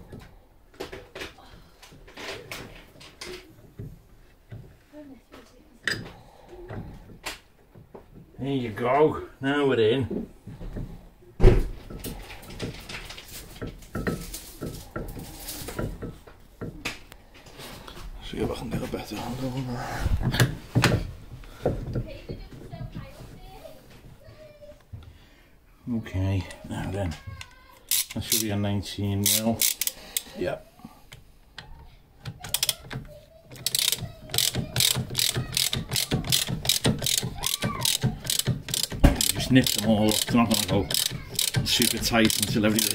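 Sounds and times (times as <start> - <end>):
metal clicks and knocks: 31.6 - 42.9.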